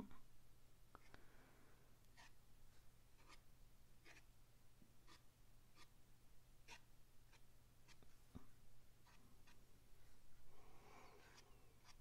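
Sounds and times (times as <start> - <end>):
paintbrush swishing on paper: 11.2 - 12.0.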